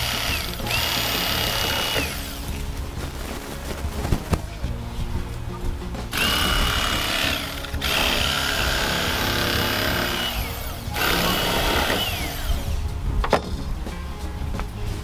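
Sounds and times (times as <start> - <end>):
electric fillet knife whining: 0.0 - 2.4, 6.2 - 12.7.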